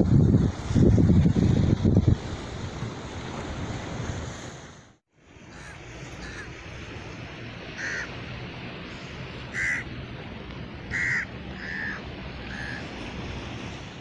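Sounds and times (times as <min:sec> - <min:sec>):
surf: 0:00.0 - 0:14.0
wind: 0:00.0 - 0:14.0
bird harsh calls: 0:08.9 - 0:09.9, 0:10.9 - 0:12.9.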